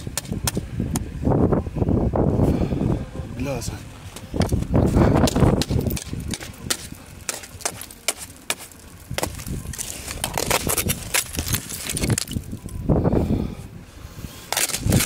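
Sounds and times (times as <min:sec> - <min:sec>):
ice and snow crunching: 0:04.4 - 0:12.8, 0:14.1 - 0:15.0.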